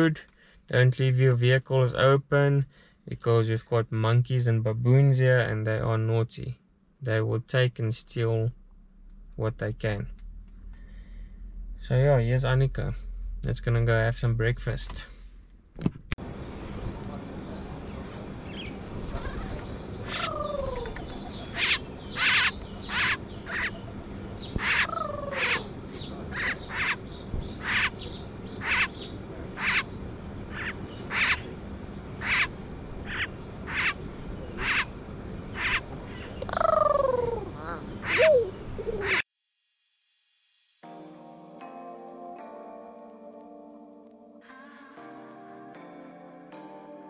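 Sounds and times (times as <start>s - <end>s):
birds calling sharp high notes: 17.8s - 31.6s, 32.2s - 39.2s.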